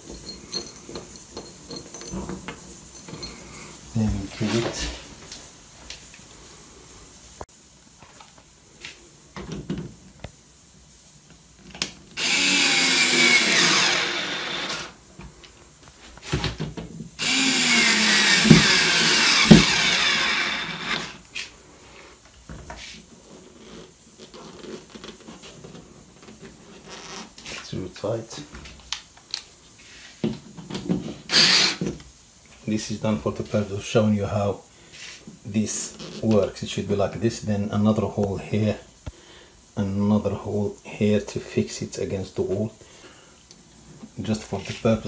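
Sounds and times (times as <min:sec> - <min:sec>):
power screwdriver running: 0:12.2 - 0:15.0, 0:17.2 - 0:21.2, 0:31.3 - 0:31.8.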